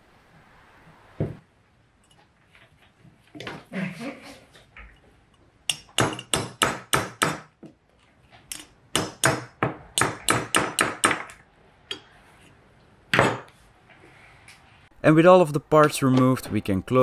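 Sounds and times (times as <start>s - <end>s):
hammer knocking on metal punch: 5.7s - 7.5s.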